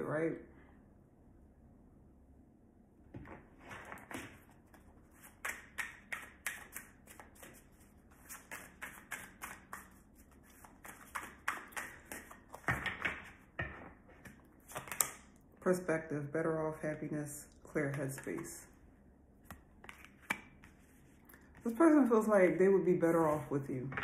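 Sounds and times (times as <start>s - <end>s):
cards being shuffled: 3.6s - 13.4s, 14.2s - 15.3s, 19.5s - 21.7s.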